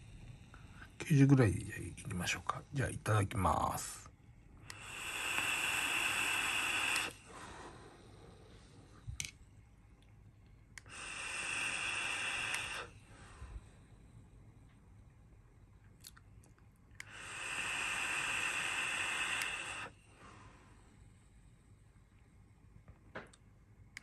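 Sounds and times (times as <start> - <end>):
air hissing through vape: 0.0 - 4.0, 4.6 - 9.0, 10.8 - 13.9, 17.0 - 20.9
hissing exhale of vapor: 4.7 - 8.7, 10.8 - 13.8, 17.0 - 20.8.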